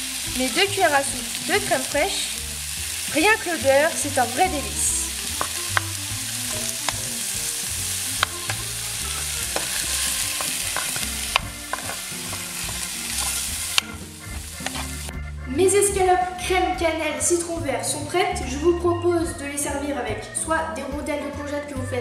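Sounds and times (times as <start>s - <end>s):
food sizzling in a frying pan: 0.0s - 15.1s
metal spoon scraping a pan: 8.1s - 15.2s.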